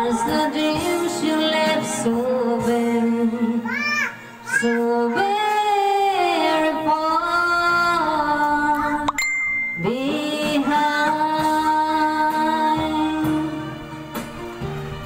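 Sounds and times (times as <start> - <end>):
woman singing into microphone: 0.0 - 3.7, 4.6 - 14.2
karaoke backing track: 0.0 - 15.0
short ding: 9.1 - 10.1.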